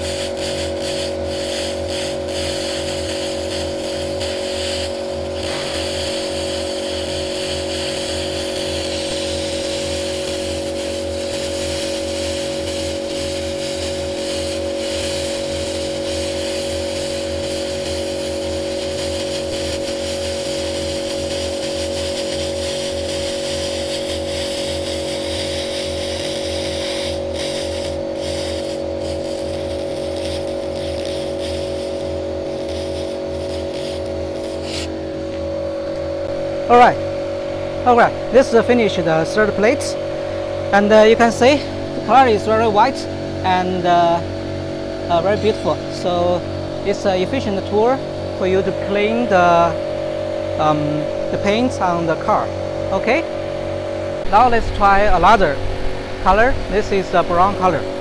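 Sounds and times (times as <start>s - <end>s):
hissing crackle of burning paint: 0.0s - 45.4s
laser machine drone: 0.0s - 58.0s.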